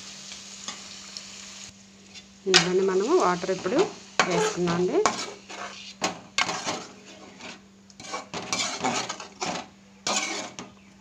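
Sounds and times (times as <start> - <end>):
ladle scraping metal pot: 3.5 - 10.8.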